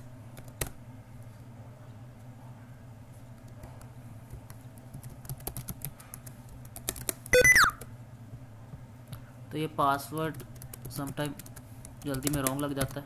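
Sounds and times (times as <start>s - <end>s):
keyboard typing: 4.5s - 7.9s, 10.3s - 13.0s.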